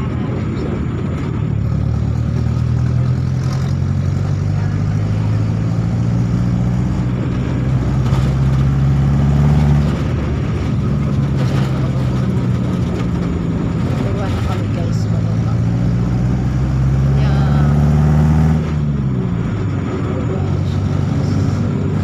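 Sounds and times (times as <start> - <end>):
road noise: 0.0 - 22.0
vehicle engine hum: 0.0 - 22.0.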